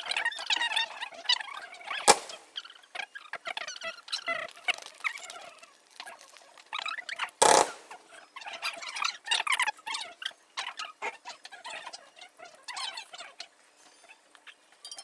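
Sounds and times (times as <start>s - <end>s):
sped-up fireworks crackling: 2.0s - 2.6s, 7.4s - 8.1s
loud firework burst: 2.1s - 2.5s, 7.4s - 7.9s.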